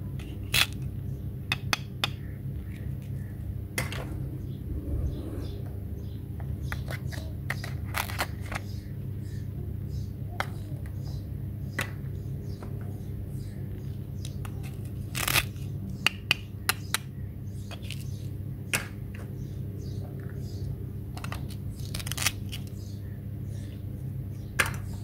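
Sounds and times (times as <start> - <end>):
steady low hum: 0.0 - 7.5.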